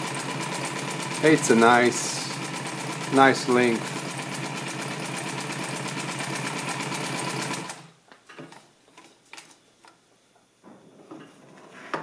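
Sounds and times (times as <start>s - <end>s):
industrial sewing machine stitching: 0.0s - 7.9s.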